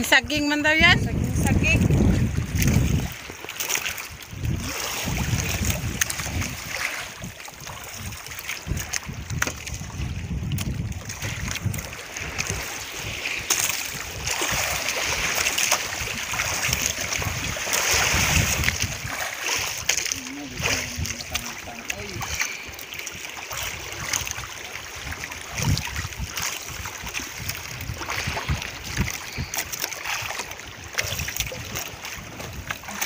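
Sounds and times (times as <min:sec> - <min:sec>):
water lapping: 0:00.0 - 0:33.0
wind buffeting microphone: 0:00.0 - 0:33.0.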